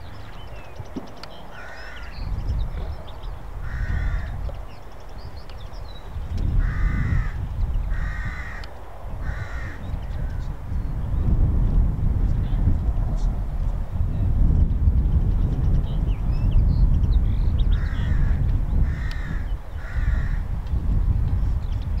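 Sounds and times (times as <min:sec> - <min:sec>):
crow cawing: 0:01.5 - 0:02.2, 0:03.6 - 0:04.4, 0:06.6 - 0:10.4, 0:17.8 - 0:20.4.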